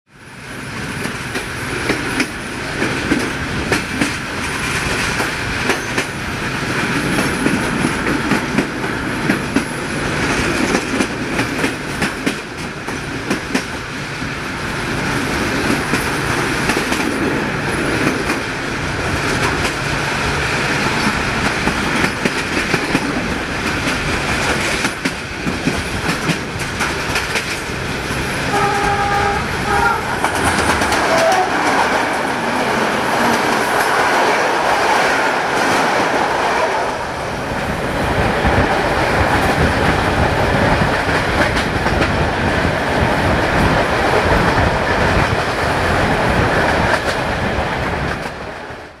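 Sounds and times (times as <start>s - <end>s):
train rumble: 0.2s - 49.0s
train wheels clattering over rail joints: 0.7s - 13.9s, 20.9s - 29.0s, 30.1s - 36.4s, 38.2s - 47.4s
train horn blasts: 28.5s - 30.3s, 31.0s - 31.9s.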